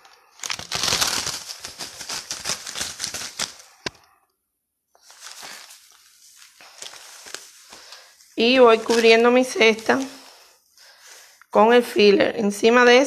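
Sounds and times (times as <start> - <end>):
paper filler crinkling: 0.0 - 4.0, 5.0 - 11.3.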